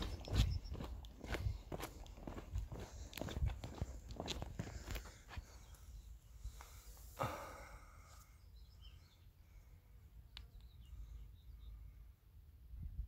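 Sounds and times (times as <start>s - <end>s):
faint bird chirps: 0.0s - 1.0s, 7.8s - 12.1s.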